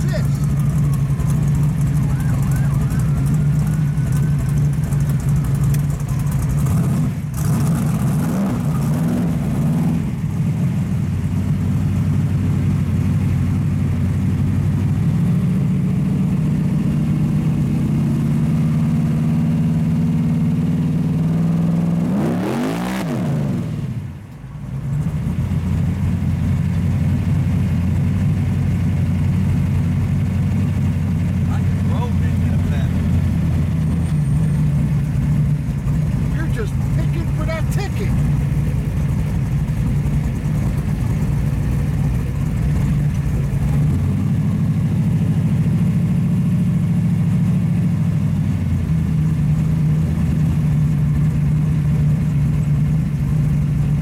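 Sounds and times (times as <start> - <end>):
car engine rumble from inside: 0.0 - 54.0.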